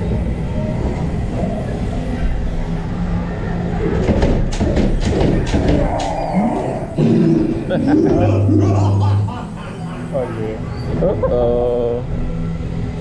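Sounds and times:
sharp knocks and clacks: 0:04.0 - 0:06.2.

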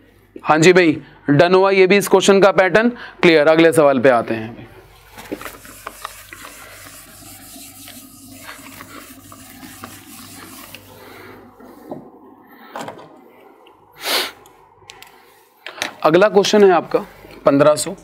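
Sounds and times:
eraser rubbing on whiteboard: 0:05.1 - 0:11.1.

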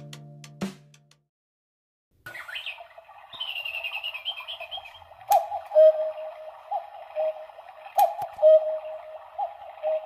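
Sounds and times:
high bird-like twittering: 0:02.3 - 0:06.2
two-note cuckoo calls: 0:02.3 - 0:10.0.

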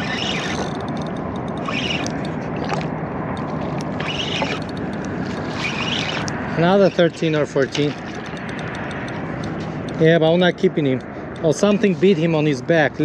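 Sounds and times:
fishing reel cranking: 0:00.0 - 0:02.8, 0:03.9 - 0:09.2.

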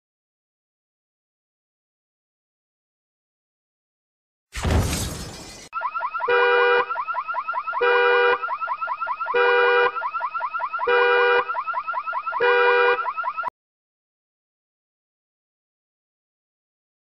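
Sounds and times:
multi-tone alarm blare: 0:05.5 - 0:13.5.

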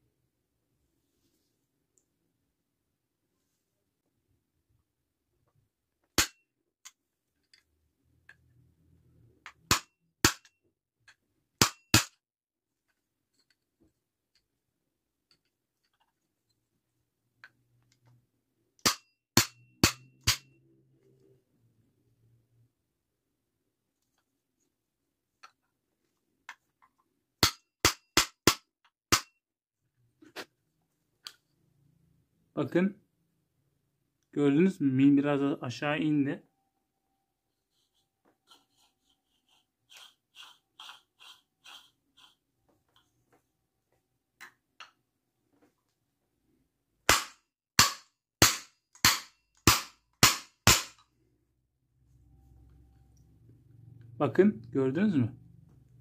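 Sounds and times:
hammer striking metal punch: 0:11.6 - 0:12.2, 0:18.8 - 0:20.6, 0:47.1 - 0:51.0.

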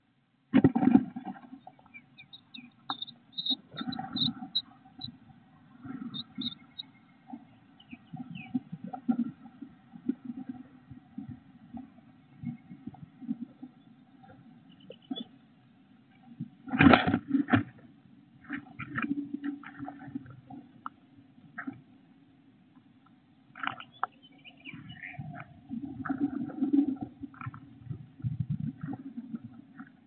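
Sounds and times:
nestlings peeping: 0:01.6 - 0:05.2, 0:06.0 - 0:08.7.

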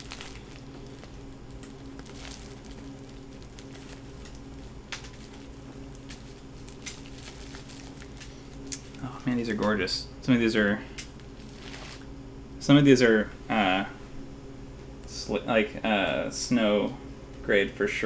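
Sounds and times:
cloth bag rustling: 0:00.0 - 0:09.0, 0:11.4 - 0:12.0
steady low hum: 0:00.0 - 0:18.0.

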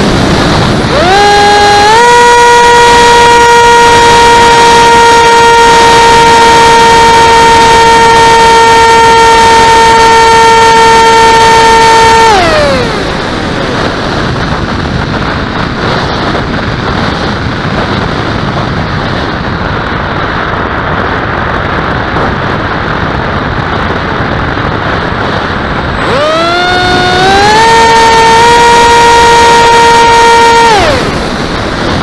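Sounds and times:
model aircraft motor whine: 0:00.0 - 0:14.0, 0:26.0 - 0:31.2
airflow rushing: 0:00.0 - 0:32.0.

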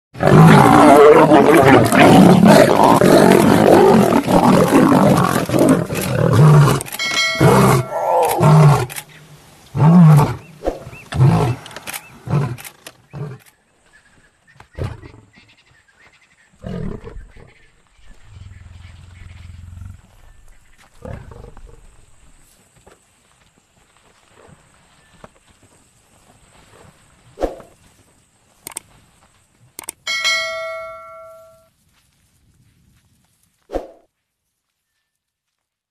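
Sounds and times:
lions snarling and roaring: 0:00.2 - 0:09.1, 0:09.7 - 0:13.5, 0:21.0 - 0:22.0.

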